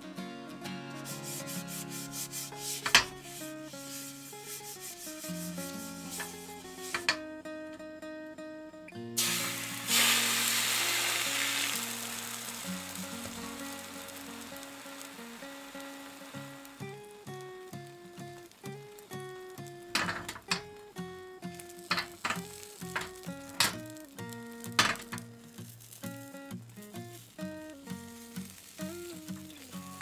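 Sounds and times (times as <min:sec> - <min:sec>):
soft guitar music: 0:00.0 - 0:30.0
brush scratching on pan: 0:01.0 - 0:07.2
egg sizzling in pan: 0:01.0 - 0:07.2, 0:09.2 - 0:30.0.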